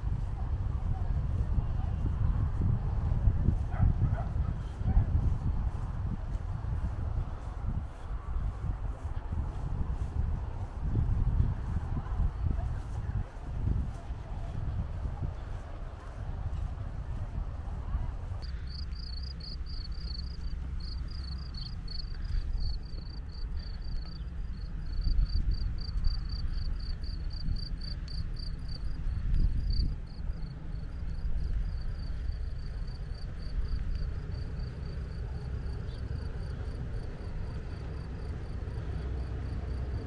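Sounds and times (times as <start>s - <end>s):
wind rumble on microphone: 0.0s - 40.0s
cricket chirping: 18.4s - 40.0s.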